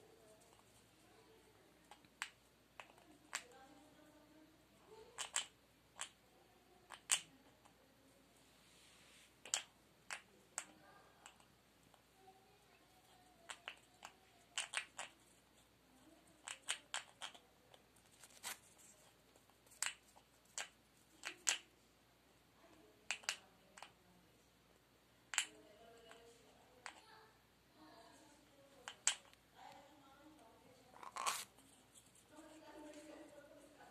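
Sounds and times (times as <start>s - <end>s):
parrot beak clicks and snaps: 5.2s - 6.2s, 6.9s - 7.3s, 13.5s - 15.1s, 19.7s - 21.7s.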